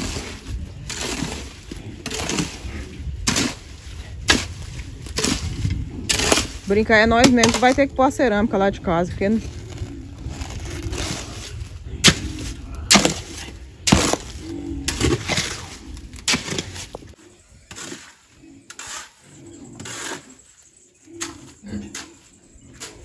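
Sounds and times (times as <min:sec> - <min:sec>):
low rumble: 0:00.0 - 0:17.2.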